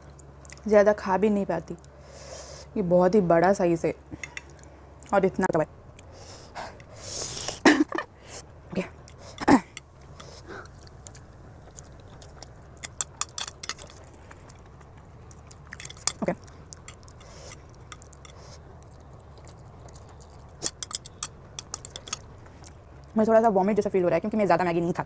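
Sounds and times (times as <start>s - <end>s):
person chewing and slurping noodles: 9.0s - 22.8s.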